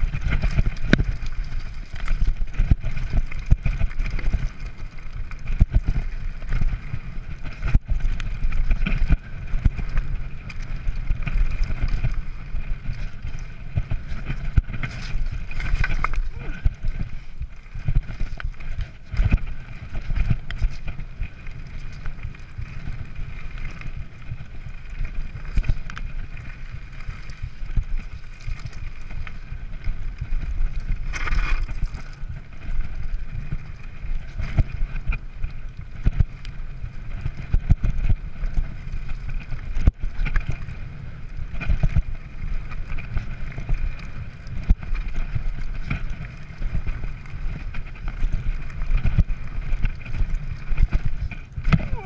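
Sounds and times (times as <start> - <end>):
bike tyres rumbling over stones: 0.0 - 52.0
wind noise on microphone: 0.0 - 52.0
bike frame rattling and knocking: 0.1 - 22.2.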